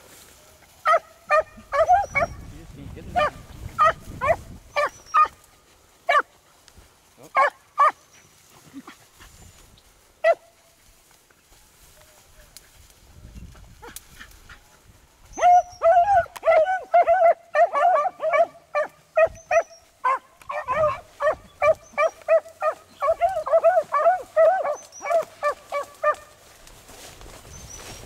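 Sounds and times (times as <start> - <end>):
dogs barking: 0.8 - 2.5, 3.1 - 5.4, 6.1 - 6.3, 7.2 - 8.2, 10.2 - 10.5, 15.3 - 26.4.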